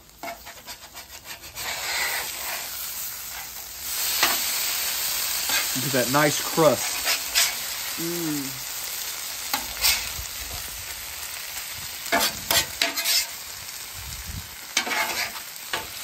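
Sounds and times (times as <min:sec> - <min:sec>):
spatula scraping griddle: 0:00.0 - 0:08.0, 0:09.5 - 0:10.7, 0:12.0 - 0:13.5, 0:14.7 - 0:16.0
hash sizzling on griddle: 0:00.0 - 0:16.0.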